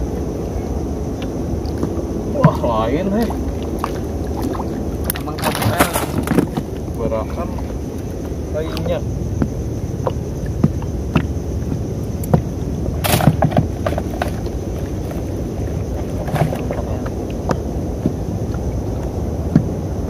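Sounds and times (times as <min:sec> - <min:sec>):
water and wind washing: 0:00.0 - 0:20.0
water splash: 0:01.6 - 0:06.7.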